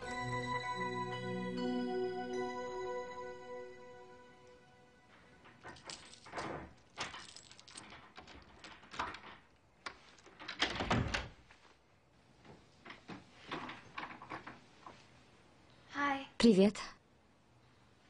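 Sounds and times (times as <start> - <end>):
door clicks and knocks: 5.1 - 11.4, 12.9 - 14.6
door thud: 10.4 - 11.4.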